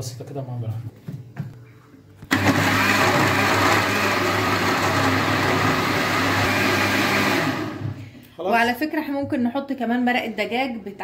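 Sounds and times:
blender motor running: 2.3s - 8.0s.

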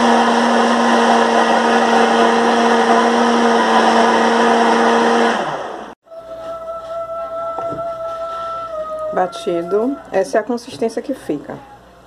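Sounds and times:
blender running: 0.0s - 6.0s.

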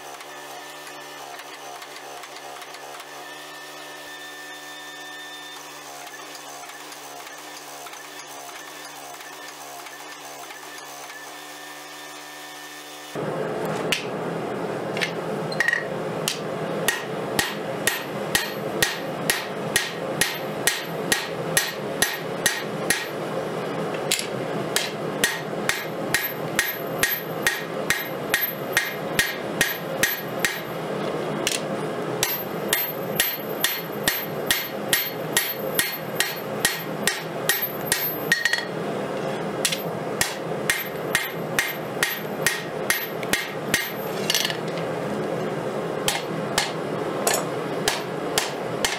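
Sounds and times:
steady background noise: 13.2s - 48.9s
hammer ringing on anvil: 16.9s - 23.1s, 24.8s - 30.7s, 32.2s - 38.7s.

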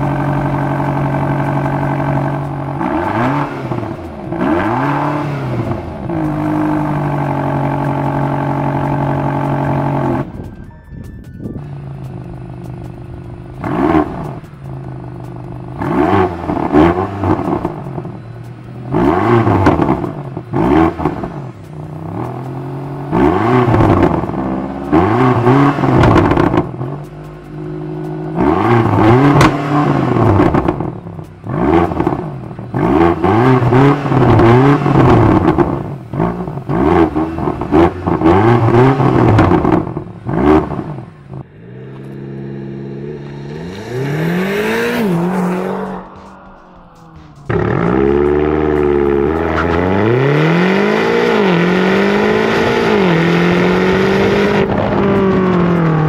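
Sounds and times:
car engine revving: 0.0s - 10.5s, 11.6s - 56.0s
exhaust pops: 25.3s - 27.2s, 28.3s - 42.2s.

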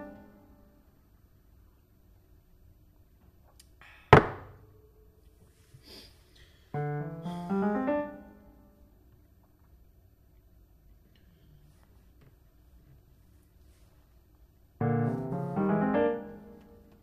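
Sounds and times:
descending run of piano notes: 14.8s - 17.0s.

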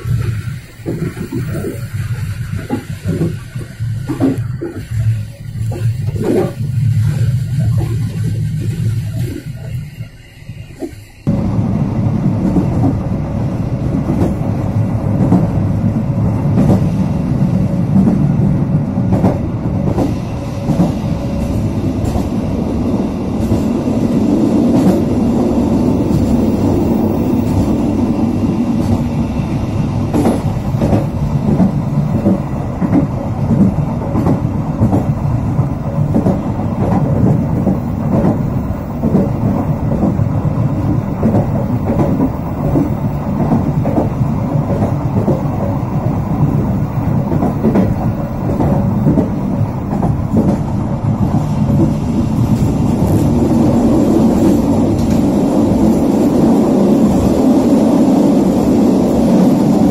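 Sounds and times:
train rumbling on track: 0.0s - 59.9s
wheels clicking over rails: 19.0s - 59.9s.

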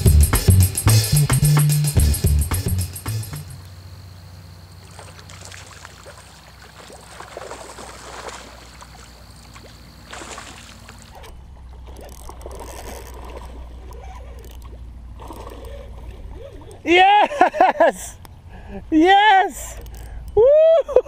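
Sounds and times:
fish splashing at surface: 4.8s - 16.8s.

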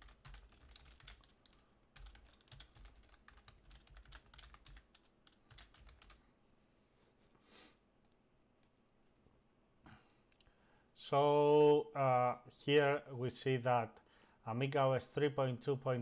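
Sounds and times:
faint keyboard typing: 0.0s - 6.2s.

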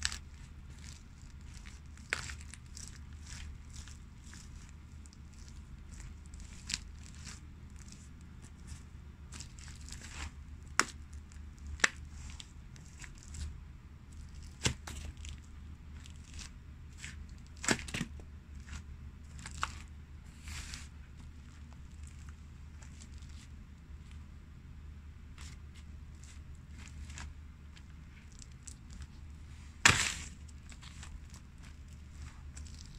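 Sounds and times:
low hum: 18.2s - 32.9s
shoes crushing pumpkin: 29.8s - 32.9s.

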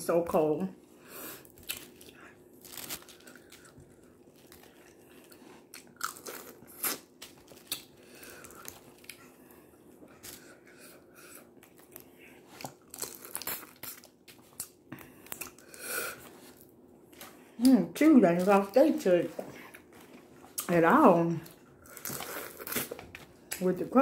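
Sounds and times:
chewing: 1.5s - 17.4s, 21.4s - 23.6s.

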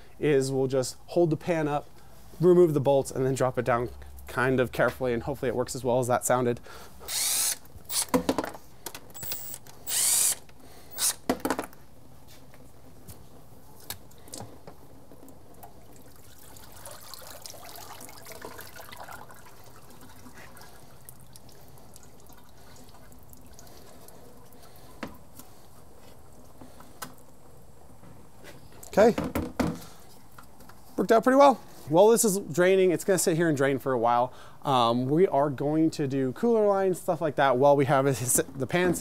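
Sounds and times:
cordless drill spinning: 7.0s - 8.2s, 9.2s - 11.3s
fluid trickling and dripping: 15.1s - 25.6s.

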